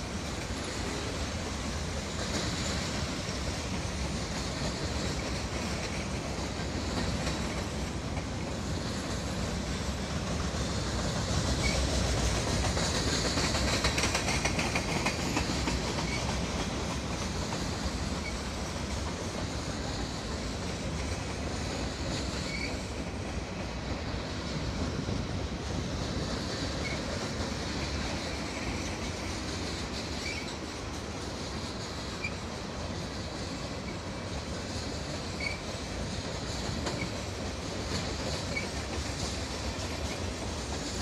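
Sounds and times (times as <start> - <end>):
steel wheels rolling on rail: 0.0 - 41.0
high wheel squeaks: 22.2 - 22.9, 30.1 - 30.6, 35.3 - 35.8, 38.0 - 38.9.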